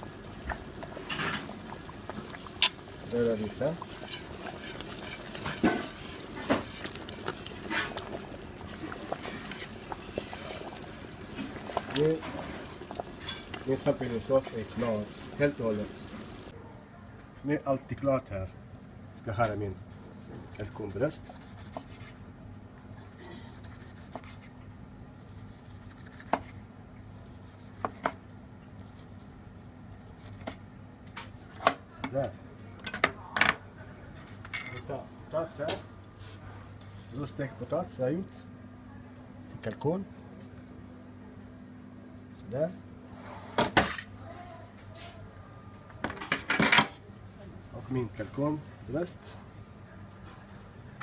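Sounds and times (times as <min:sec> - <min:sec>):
steady low hum: 0:00.0 - 0:46.0
whisk sloshing thick sauce: 0:00.6 - 0:16.5, 0:19.5 - 0:22.2
whisk clicking on pot: 0:02.1 - 0:15.9.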